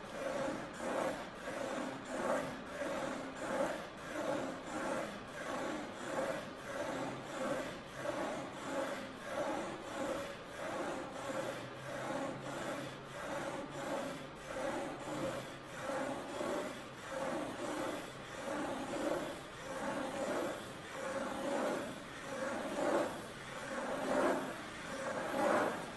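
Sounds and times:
pen scratching on paper: 0.2 - 25.9.

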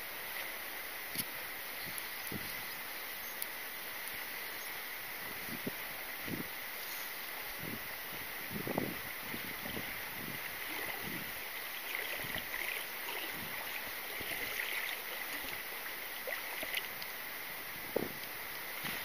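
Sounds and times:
river water rushing: 0.0 - 19.0
small water splashes: 9.2 - 17.4.

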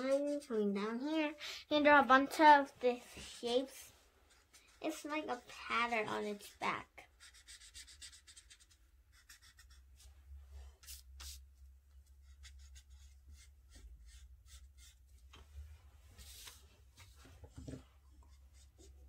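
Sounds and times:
felt-tip marker scratching paper: 0.0 - 0.6, 4.3 - 5.2, 7.1 - 10.1, 12.2 - 15.0
paper rubbing: 10.8 - 11.4.

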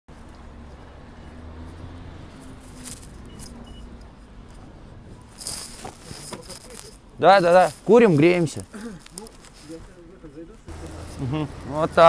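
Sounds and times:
footsteps on wet paving: 0.1 - 6.7
rustling clatter: 2.4 - 3.6, 4.5 - 8.1.

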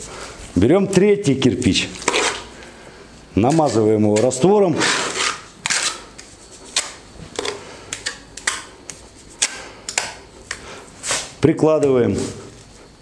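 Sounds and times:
trowel scraping mortar on brick: 2.0 - 2.4, 3.4 - 6.0.

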